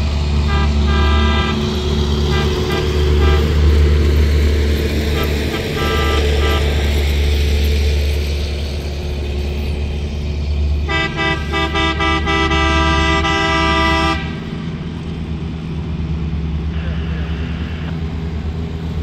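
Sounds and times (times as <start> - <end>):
engine humming: 0.0 - 19.0
machine horn toots and blast: 0.4 - 1.7, 2.3 - 3.9, 5.2 - 6.9, 10.9 - 14.4.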